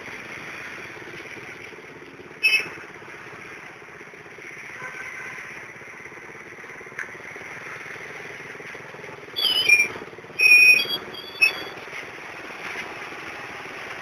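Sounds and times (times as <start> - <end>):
truck engines and road traffic: 0.0 - 14.0
shrill whistle blasts: 9.4 - 11.8.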